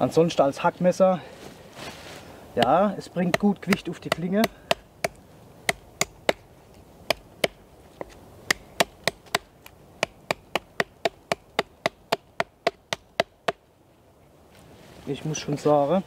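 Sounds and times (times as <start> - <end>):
knife chopping wood: 2.6 - 6.5, 7.1 - 13.6.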